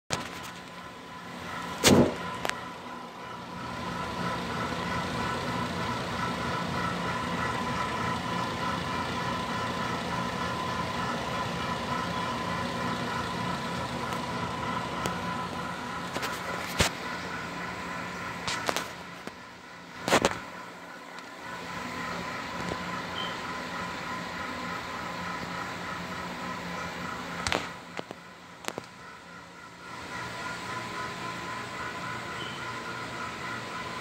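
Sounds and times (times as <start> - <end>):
exhaust fan motor humming: 0.1 - 34.0
fan whining tones: 0.1 - 34.0.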